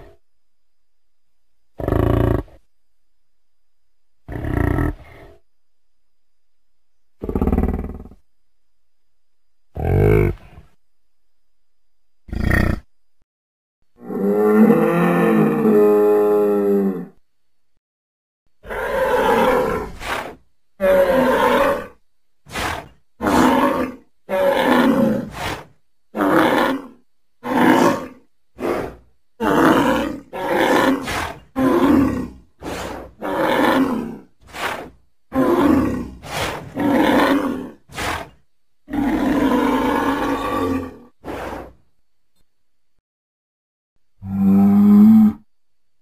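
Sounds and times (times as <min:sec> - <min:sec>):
bull giving deep calls: 0:18.6 - 0:25.4, 0:26.1 - 0:41.2.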